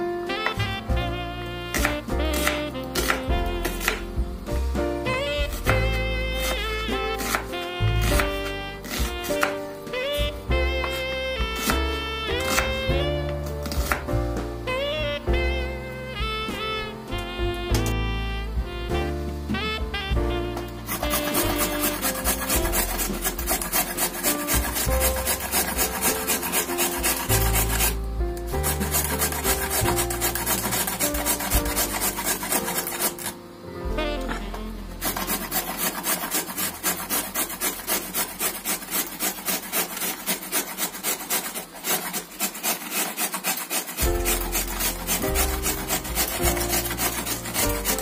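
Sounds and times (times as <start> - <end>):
background music: 0.0 - 41.5, 43.9 - 48.0
carrot rasping on metal grater: 1.7 - 4.1, 5.1 - 13.0, 13.6 - 14.1, 20.9 - 33.4, 34.2 - 48.0.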